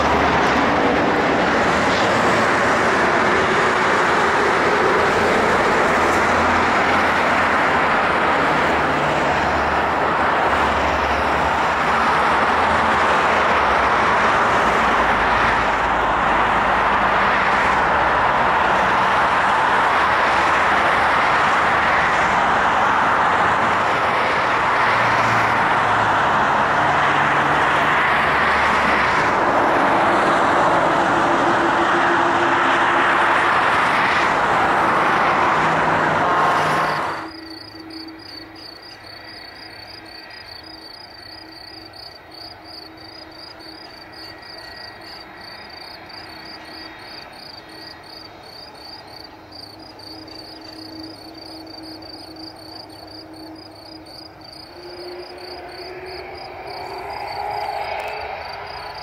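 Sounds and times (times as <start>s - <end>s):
jet engines humming while taxiing: 0.0s - 59.0s
jet engines roaring: 0.0s - 59.0s
insects chirping: 36.8s - 59.0s.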